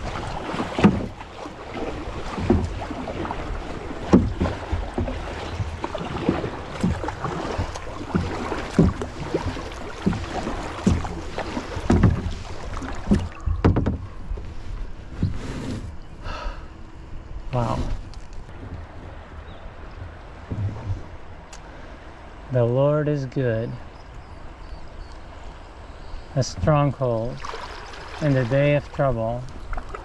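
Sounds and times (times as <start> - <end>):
paddle strokes splashing water: 0.0 - 15.9, 26.4 - 30.0
wind noise on microphone: 17.4 - 21.2.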